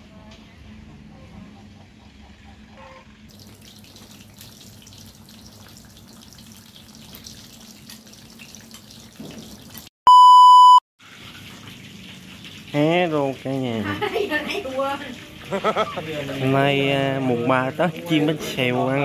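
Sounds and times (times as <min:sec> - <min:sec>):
test tone beep: 0:10.1 - 0:10.8.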